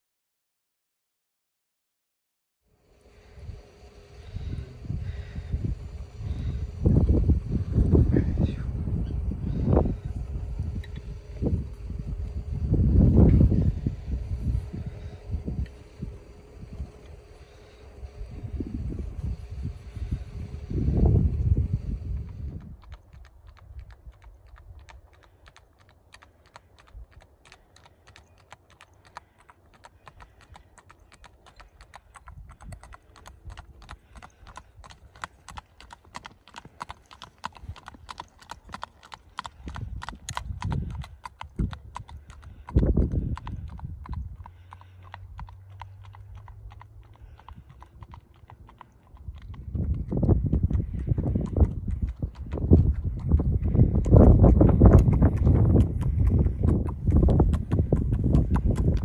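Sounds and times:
short low rumbles: 3.0s - 22.8s, 49.3s - 59.0s
horse hooves on asphalt: 3.5s - 59.0s.

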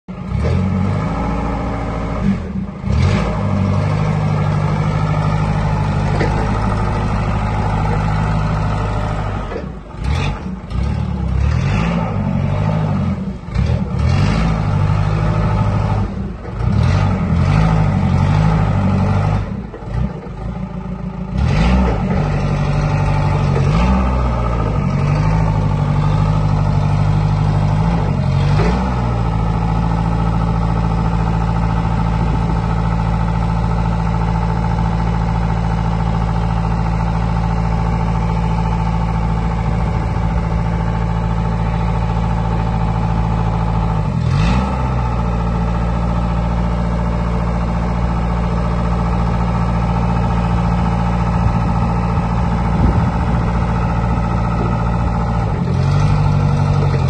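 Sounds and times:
forklift diesel engine revving: 0.1s - 57.0s.

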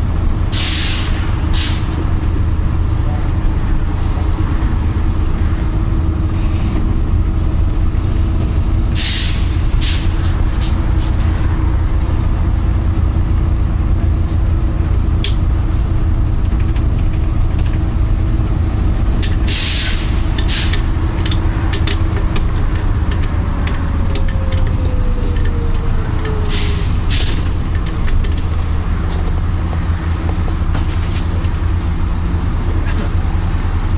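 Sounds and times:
bus engine droning: 0.0s - 33.9s
air brake hiss: 0.5s - 1.8s, 8.9s - 10.2s, 19.5s - 20.8s, 26.4s - 27.4s.

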